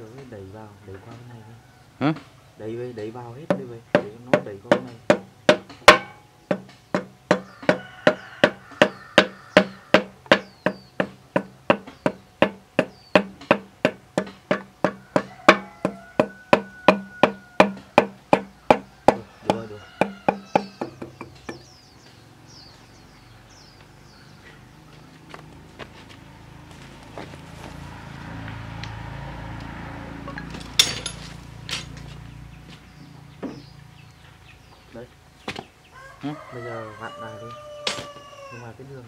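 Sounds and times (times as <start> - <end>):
hammer blows on metal bar: 3.5 - 21.6.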